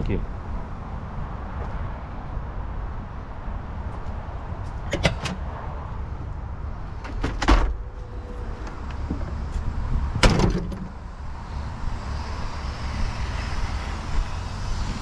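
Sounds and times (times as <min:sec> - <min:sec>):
truck door slamming: 0:07.0 - 0:07.9, 0:10.1 - 0:11.0.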